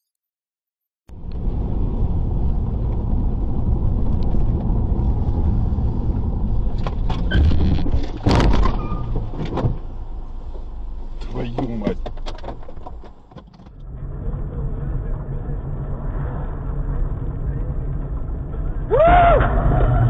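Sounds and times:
car engine and road rumble: 1.1s - 20.0s
car collision crash: 7.2s - 9.8s.

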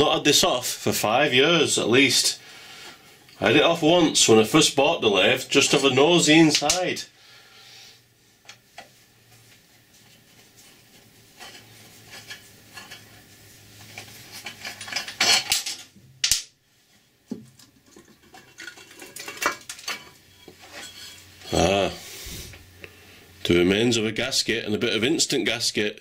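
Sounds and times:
metal clinking and scraping: 10.6s - 16.0s, 17.6s - 22.5s.

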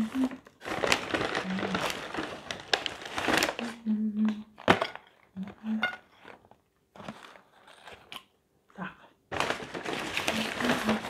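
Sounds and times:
person humming: 0.0s - 0.5s, 1.4s - 2.0s, 3.6s - 4.6s, 5.4s - 6.0s
paper bag rustling: 0.0s - 3.8s, 6.2s - 8.1s, 9.3s - 11.0s.

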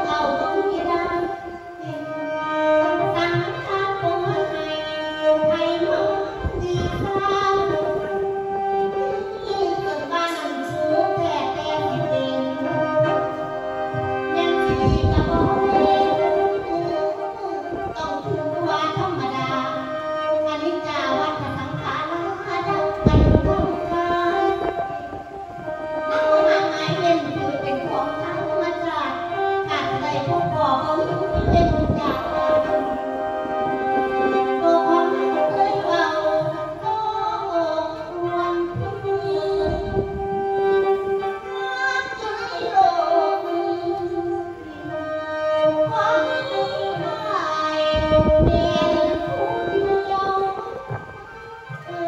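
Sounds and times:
woman singing into microphone: 0.0s - 52.0s
mouth organ playing chords: 12.4s - 18.5s, 31.2s - 35.9s, 38.0s - 41.5s.

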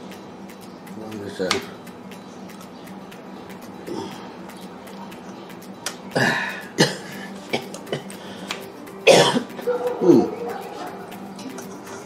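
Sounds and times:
person coughing: 6.2s - 8.1s, 9.0s - 9.5s.

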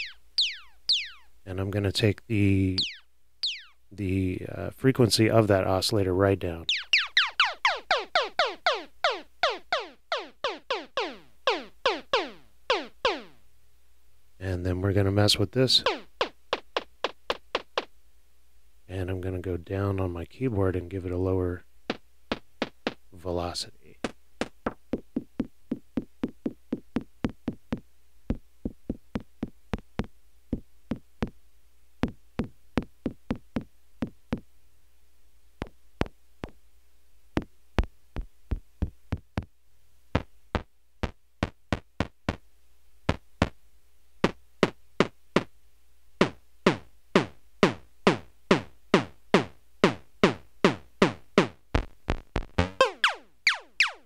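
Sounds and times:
synthesizer drum-like hits: 51.4s - 53.2s.

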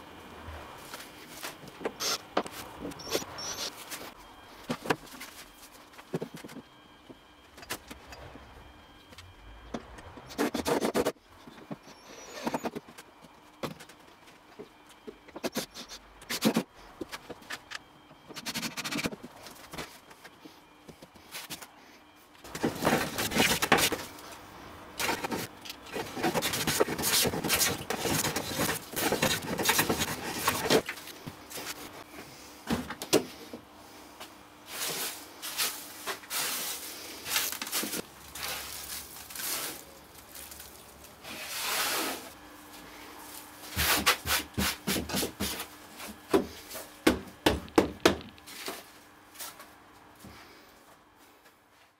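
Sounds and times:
wood shavings swept by hand: 34.6s - 42.4s.

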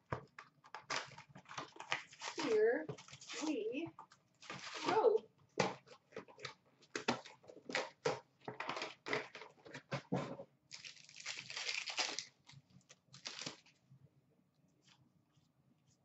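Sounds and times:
card packs crinkling: 10.7s - 13.7s
pack wrapper tearing: 10.7s - 13.7s.

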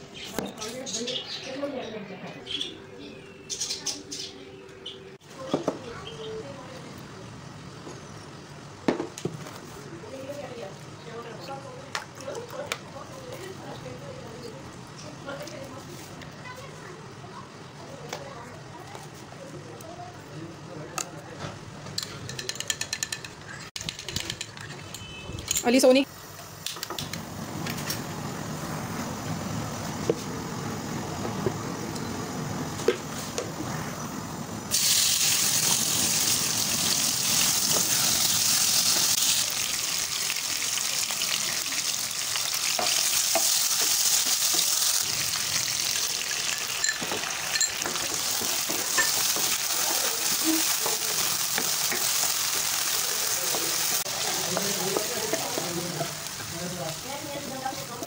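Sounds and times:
food sizzling in oil: 34.7s - 58.0s
wooden spoon stirring in pan: 41.5s - 58.0s.

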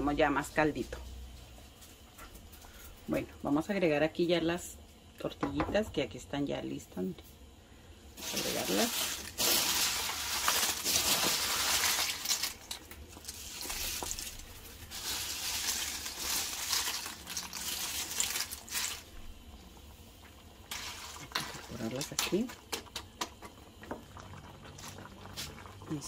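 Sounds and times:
tortilla chips rustling and crackling: 8.2s - 19.2s.

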